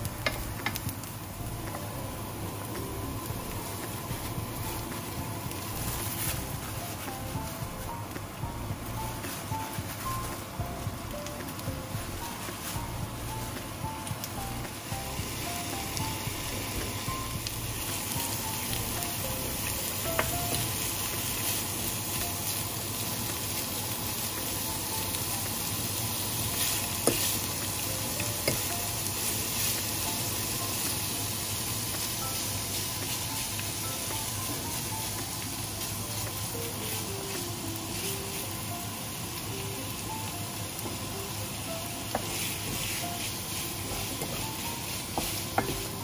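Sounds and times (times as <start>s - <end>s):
faint melody: 0.0s - 46.0s
meat and onions sizzling in pan: 0.0s - 46.0s
utensils clicking against pan: 0.2s - 1.0s.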